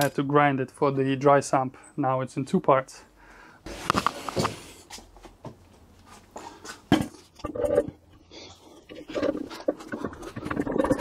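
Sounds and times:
heavy metal casing clunking and scraping: 6.9s - 11.0s.

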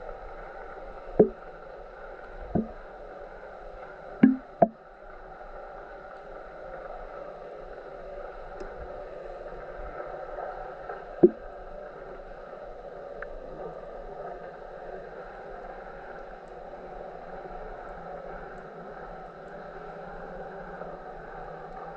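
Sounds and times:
sharp knock: 4.2s - 4.5s.

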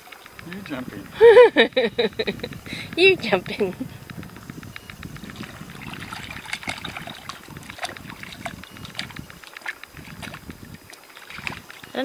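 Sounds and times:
seawater lapping and trickling: 0.0s - 12.0s
small splashes and drips: 5.2s - 12.0s.

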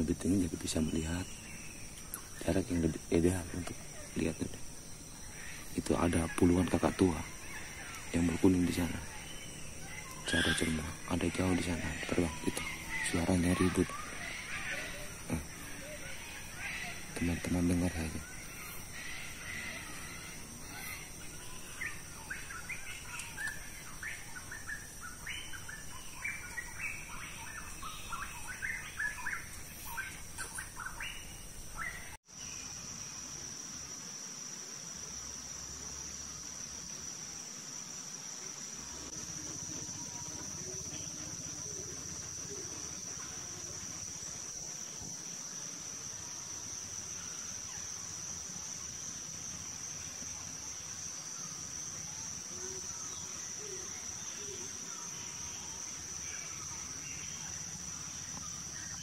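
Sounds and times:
high insect drone: 0.0s - 59.0s
cockatoos screeching: 5.3s - 31.2s.

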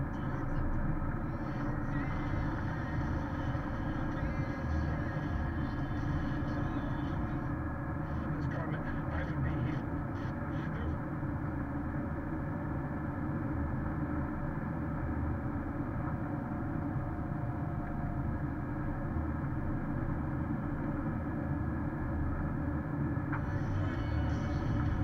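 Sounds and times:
in-cabin road noise: 0.0s - 25.0s.

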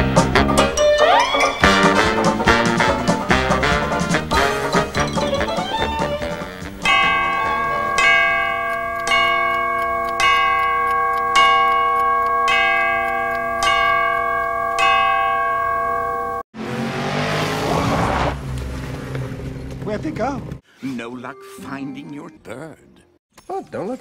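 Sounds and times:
clock bell striking: 6.8s - 16.4s.

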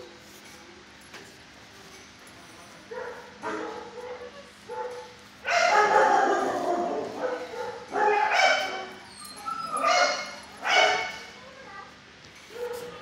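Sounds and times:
dog yipping and whining: 7.3s - 11.2s.

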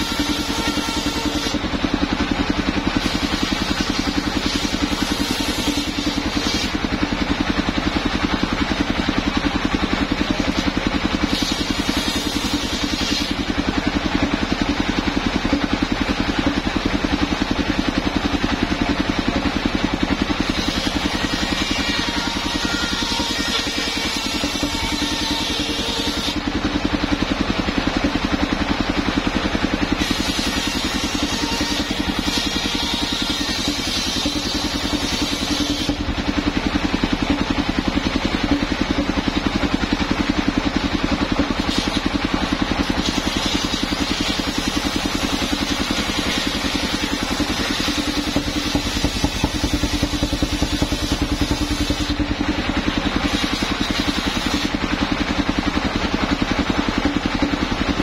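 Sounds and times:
saw blade ripping planks: 0.0s - 2.2s, 2.8s - 6.9s, 10.2s - 13.6s, 20.3s - 26.4s, 30.0s - 36.1s, 41.4s - 52.2s, 53.1s - 54.8s
sawmill engine running: 0.0s - 58.0s.

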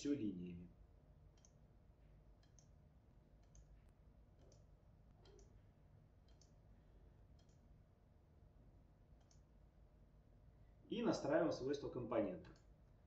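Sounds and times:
low steady hum: 0.0s - 13.0s
faint computer mouse clicks: 1.4s - 1.6s, 2.4s - 2.8s, 3.4s - 3.8s, 4.4s - 5.6s, 6.2s - 6.6s, 9.2s - 9.5s.

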